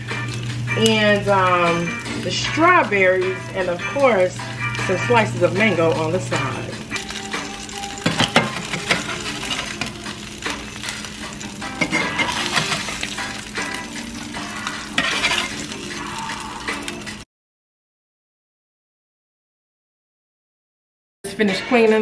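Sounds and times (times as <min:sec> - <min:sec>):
crab cakes sizzling in a frying pan: 0:00.0 - 0:17.2
metal spatula scraping a pan: 0:07.7 - 0:10.0, 0:10.6 - 0:16.0.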